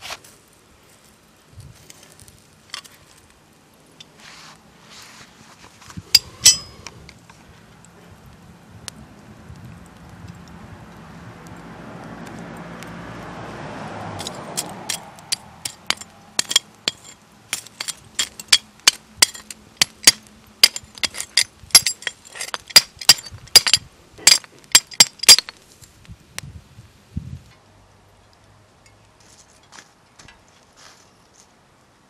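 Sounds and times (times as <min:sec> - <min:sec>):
pliers clinking through debris: 0:06.1 - 0:06.8, 0:14.2 - 0:25.6.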